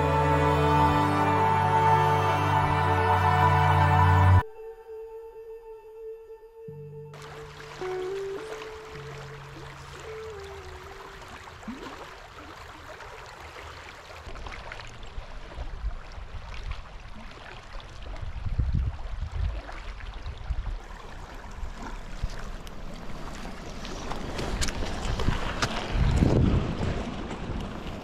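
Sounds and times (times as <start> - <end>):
creek water rushing: 0.0 - 4.4, 7.2 - 18.0, 20.8 - 28.0
wind buffeting microphone: 18.1 - 20.8, 21.5 - 28.0.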